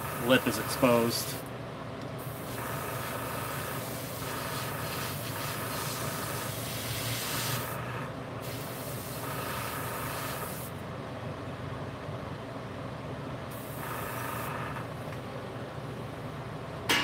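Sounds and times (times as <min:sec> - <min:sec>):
airbrush spraying hiss: 0:00.0 - 0:01.4, 0:02.2 - 0:10.7, 0:13.5 - 0:14.6
steady low hum: 0:00.0 - 0:17.0.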